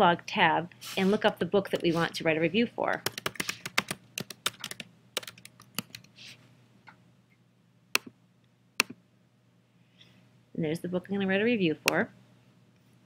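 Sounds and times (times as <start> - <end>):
sharp keyboard clicks: 3.0 - 6.1.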